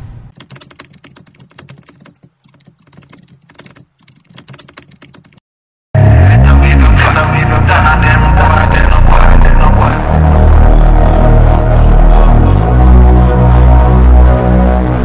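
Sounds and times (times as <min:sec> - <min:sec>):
keyboard key clicks: 0:00.4 - 0:05.4
loud music with heavy bass: 0:06.0 - 0:15.0.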